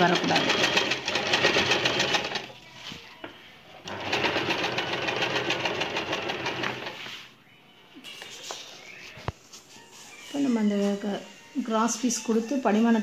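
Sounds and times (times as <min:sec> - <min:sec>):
sewing machine stitching: 0:00.0 - 0:02.5, 0:03.9 - 0:07.0.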